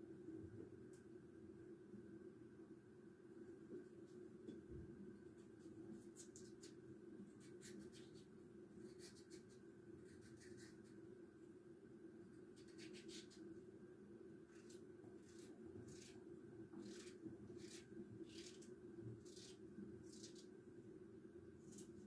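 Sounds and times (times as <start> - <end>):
low room hum: 0.0 - 22.0
knife slicing raw potato: 12.6 - 13.4, 14.5 - 16.2, 16.8 - 20.5.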